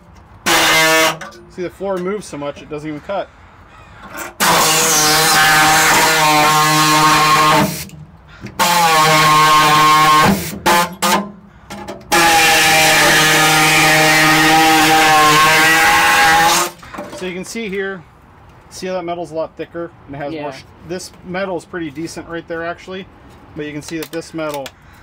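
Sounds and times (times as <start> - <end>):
air saw cutting sheet steel: 4.4 - 7.9, 8.6 - 11.2, 12.1 - 16.8.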